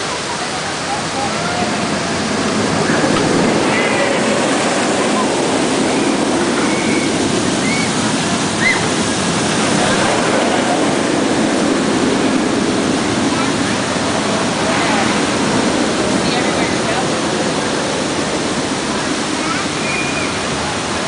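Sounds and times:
roller coaster roaring: 0.0 - 21.0
faint high cries: 6.6 - 8.0, 8.6 - 9.0.

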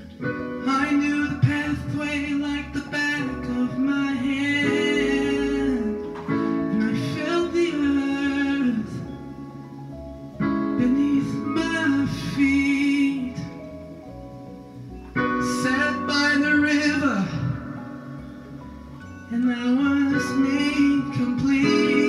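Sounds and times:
acoustic guitar: 0.0 - 22.0
man singing: 0.5 - 9.3, 10.7 - 13.8, 15.4 - 17.8, 19.3 - 22.0.

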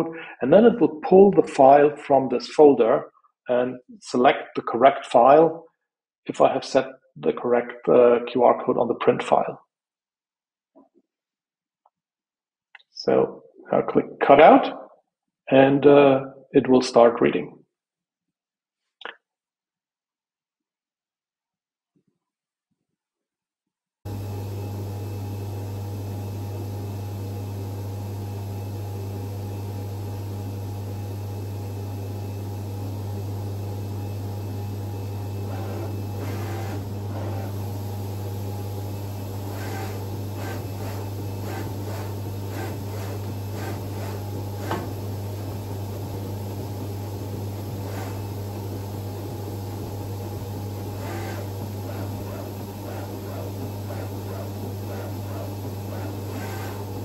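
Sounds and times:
cutter machine humming: 24.1 - 57.0.

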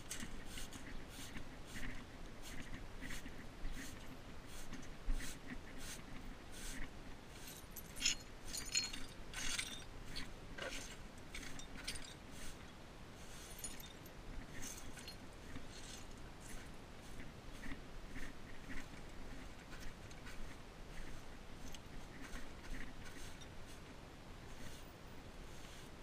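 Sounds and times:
light metallic jingle: 7.4 - 9.9, 13.5 - 15.2.

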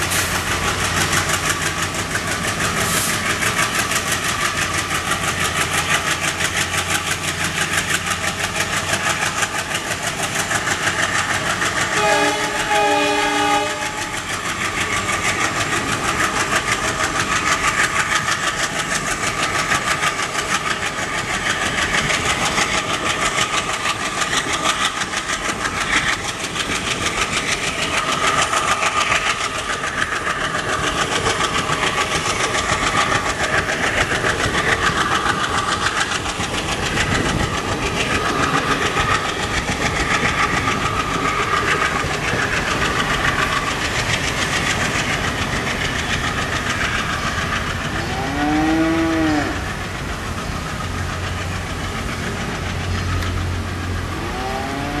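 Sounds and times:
train wheels clattering: 0.0 - 54.9
diesel locomotive engine: 0.0 - 55.0
train horn call: 12.0 - 14.1, 48.0 - 49.6.

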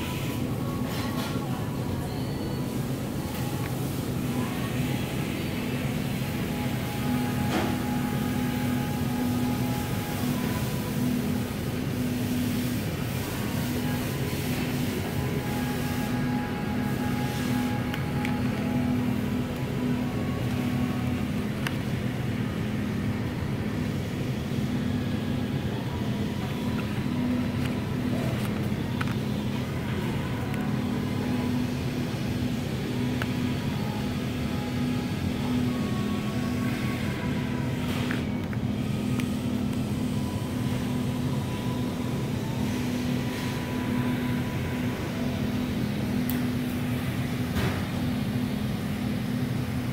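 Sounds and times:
faint high tone: 0.0 - 11.2
low background hum: 0.0 - 49.9.

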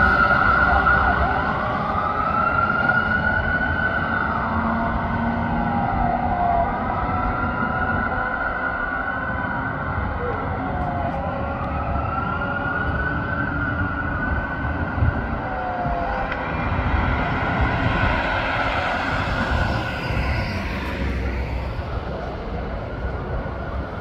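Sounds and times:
distant fire engine siren wailing: 0.0 - 24.0
road traffic noise: 0.0 - 24.0.

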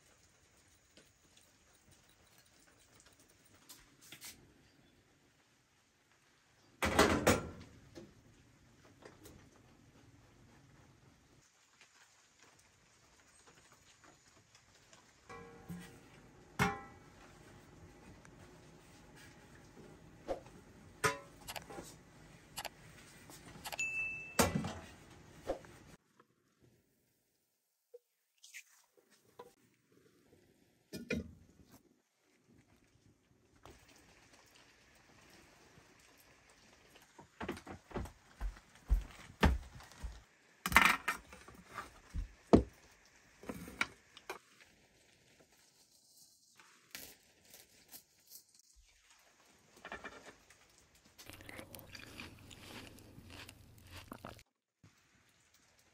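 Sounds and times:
metal cookware clanking: 15.3 - 17.3, 21.0 - 22.0.

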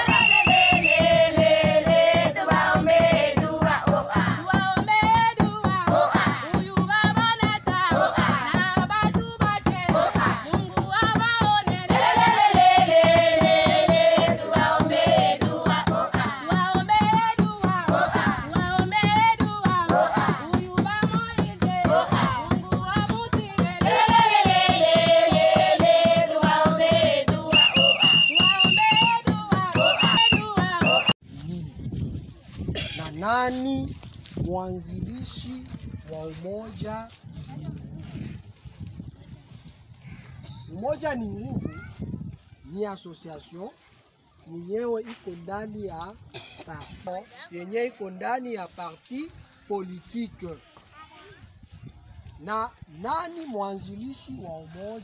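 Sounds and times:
rhythmic hand clapping: 0.0 - 31.2
women singing together: 0.0 - 31.2.

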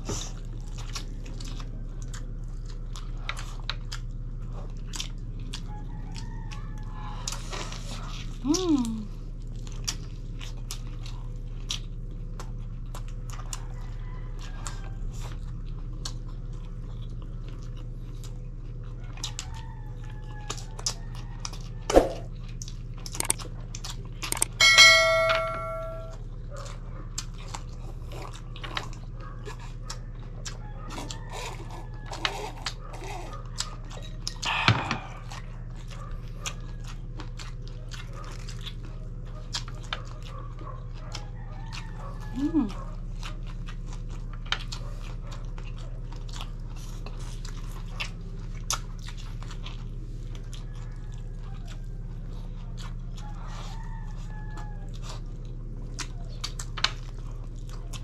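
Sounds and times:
chewing and wet mouth clicks: 0.4 - 24.6, 26.1 - 58.0
steady low hum: 19.8 - 58.0
short bell-like chime: 24.5 - 26.1.

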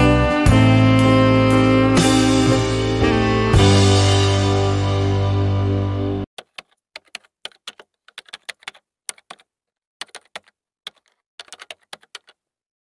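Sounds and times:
music: 0.0 - 6.3
keyboard typing clicks: 6.4 - 12.4.

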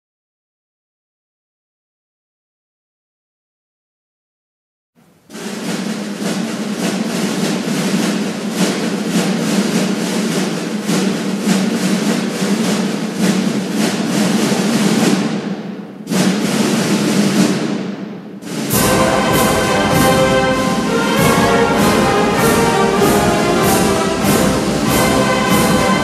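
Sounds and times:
snare drum roll: 5.2 - 26.0
bass drum: 18.7 - 26.0.

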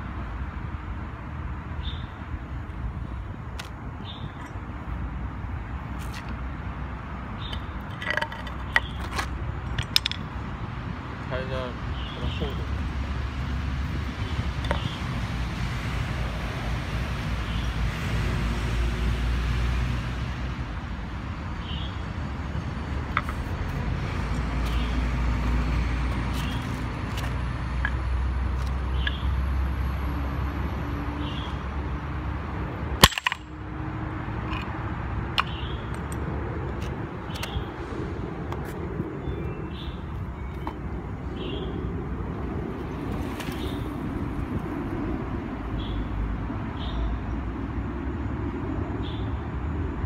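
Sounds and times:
traffic rumble: 0.0 - 50.0
broken pieces knocking: 33.0 - 33.5
hammer breaking stone tile: 33.0 - 33.5.

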